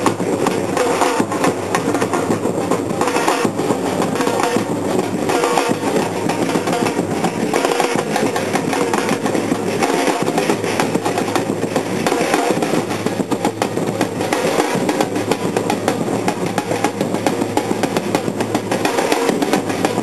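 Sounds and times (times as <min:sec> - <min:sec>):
percussion band drumming: 0:00.0 - 0:20.0.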